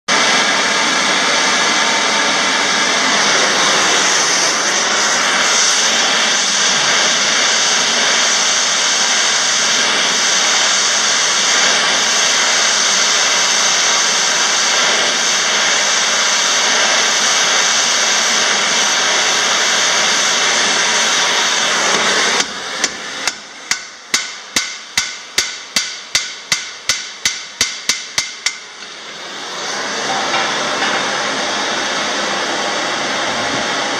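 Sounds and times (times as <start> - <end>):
gas torch hissing: 0.1 - 33.9
hammer striking hot rivet: 22.0 - 29.0.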